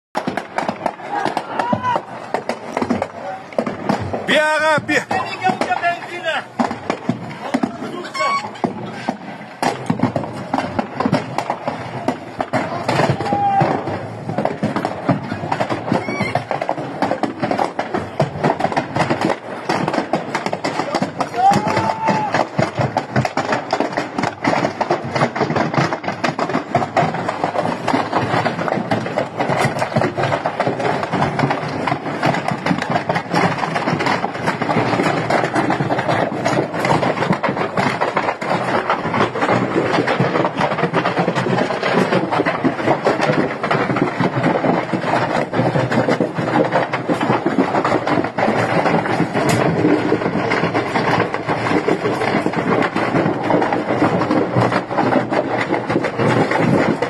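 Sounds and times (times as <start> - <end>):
fire crackling: 0.1 - 57.0
steady rush of fire: 0.1 - 57.0.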